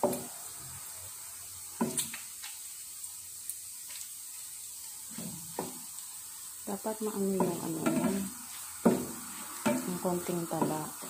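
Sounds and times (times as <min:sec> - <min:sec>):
meat sizzling in hot oil: 0:00.0 - 0:11.0
wooden spatula knocking pan: 0:01.8 - 0:02.2, 0:05.1 - 0:05.8, 0:07.3 - 0:11.0.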